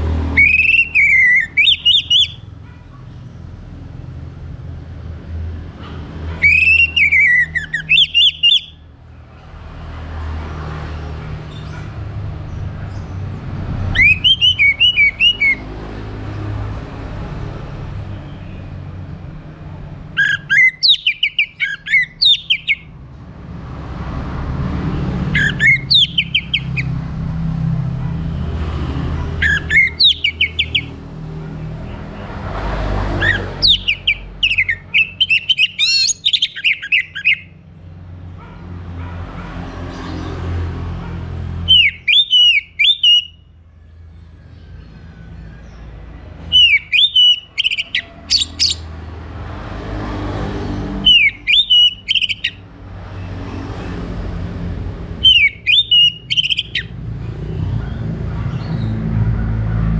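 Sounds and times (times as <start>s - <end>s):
thrush singing whistled phrases: 0.4s - 2.4s, 6.4s - 8.8s, 13.9s - 15.6s, 20.2s - 22.9s, 41.7s - 43.4s, 46.5s - 48.8s, 51.1s - 52.6s, 55.2s - 56.9s.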